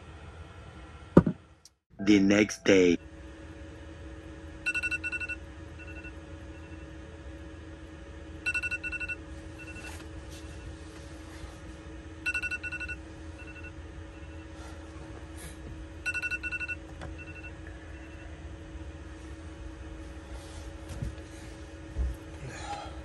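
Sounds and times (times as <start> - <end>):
air heater humming: 0.0 - 23.0
electronic alarm beeping: 4.6 - 6.8, 8.4 - 9.9, 12.2 - 14.4, 16.0 - 18.2.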